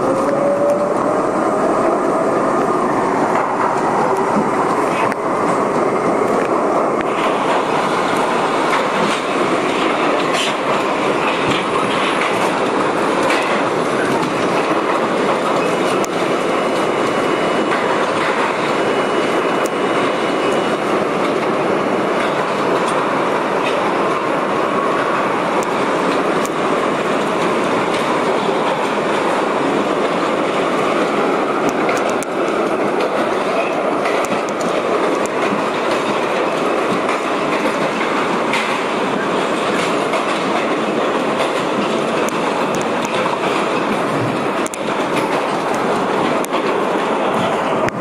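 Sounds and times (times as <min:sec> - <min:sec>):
subway wheels rumbling on rail: 0:00.0 - 0:48.0
clicks over rail joints: 0:08.7 - 0:16.9, 0:31.6 - 0:48.0.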